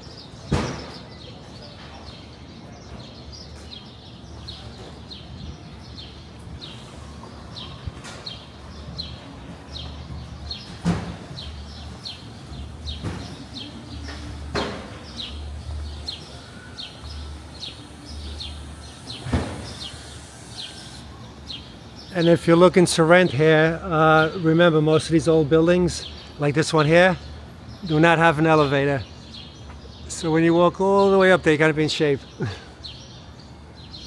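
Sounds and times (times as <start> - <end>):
city street rumble: 0.0 - 34.0
small bird chirping: 1.0 - 22.2.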